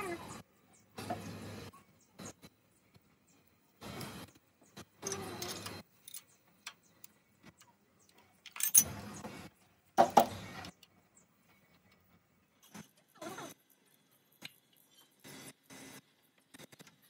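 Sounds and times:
metal parts clattering and jingling: 0:05.0 - 0:06.4, 0:08.4 - 0:08.9.

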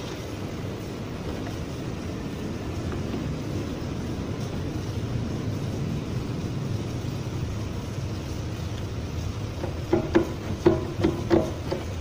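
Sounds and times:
low workshop rumble: 0:00.0 - 0:12.0.

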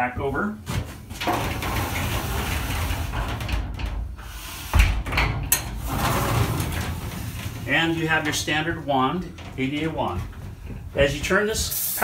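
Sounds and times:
glass door sliding on track: 0:01.0 - 0:10.1.

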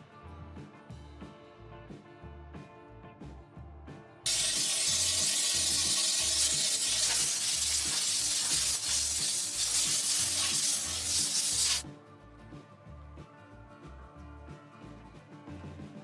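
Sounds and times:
compressed air hissing from blow gun: 0:04.3 - 0:11.8.

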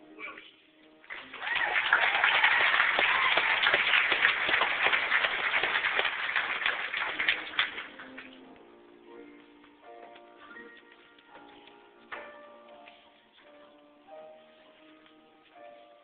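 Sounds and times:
audience applauding: 0:01.1 - 0:08.4.

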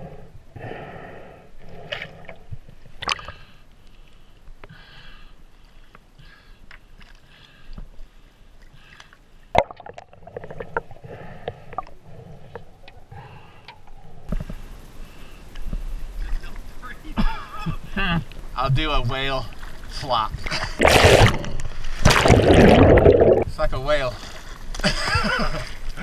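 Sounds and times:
muffled water sloshing: 0:19.4 - 0:23.6.

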